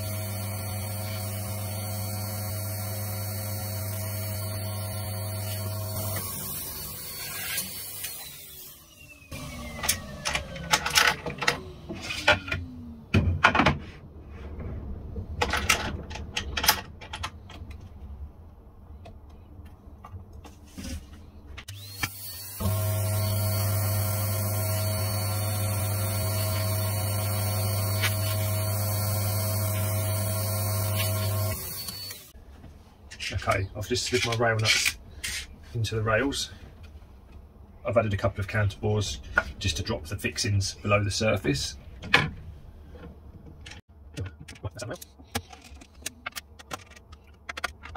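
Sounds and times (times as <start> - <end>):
motor whine winding down: 0.0 - 13.1, 21.7 - 32.3
workshop motor humming: 0.0 - 13.2, 21.7 - 32.3.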